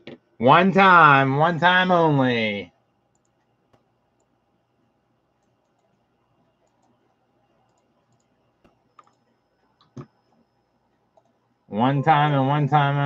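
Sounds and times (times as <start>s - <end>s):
computer clicks: 3.1s - 4.4s, 5.4s - 11.4s.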